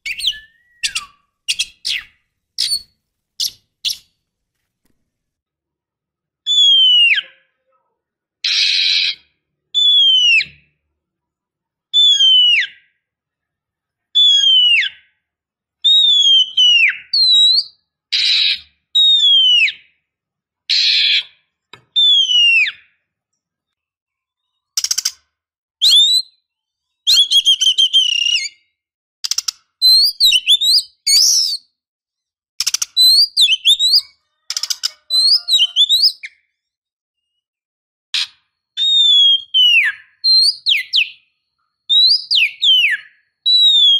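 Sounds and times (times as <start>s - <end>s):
bird whistling calls: 0.0s - 4.1s, 25.8s - 26.4s, 27.1s - 28.6s, 29.8s - 31.7s, 32.8s - 36.4s, 38.2s - 41.3s, 41.9s - 43.9s.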